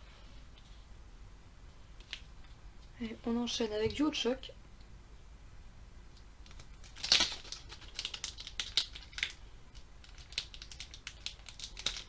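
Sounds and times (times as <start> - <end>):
foil wrapper crinkling: 6.4 - 12.0.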